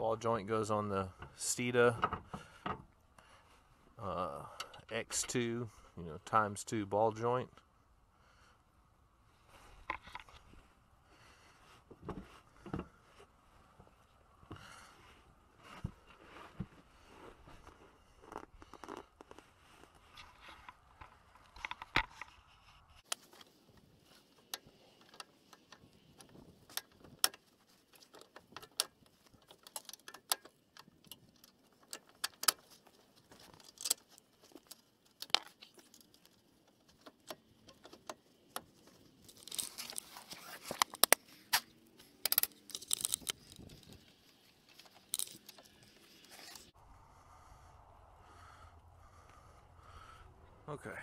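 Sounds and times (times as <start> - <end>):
rapid clicking and rustling: 23.0 - 46.7.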